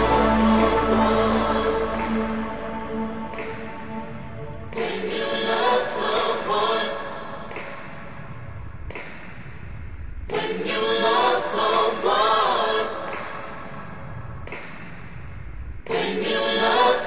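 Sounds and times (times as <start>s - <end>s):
instrumental music with low bass: 0.0s - 5.3s
choir-like voices singing: 0.0s - 8.2s, 10.3s - 14.7s, 15.8s - 17.0s.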